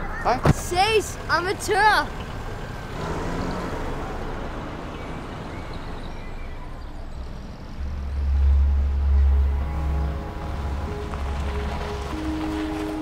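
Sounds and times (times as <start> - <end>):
cars driving with tyre noise: 0.0 - 13.0
deep low rumble: 7.6 - 12.4.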